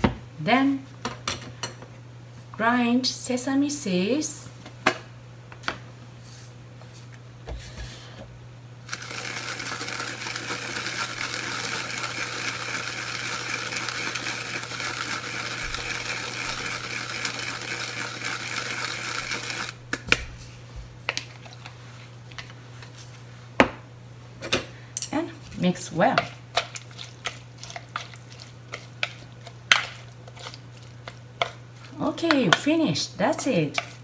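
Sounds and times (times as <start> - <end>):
grinder crunching sesame seeds: 8.9 - 20.0, 25.6 - 32.6, 33.5 - 34.0.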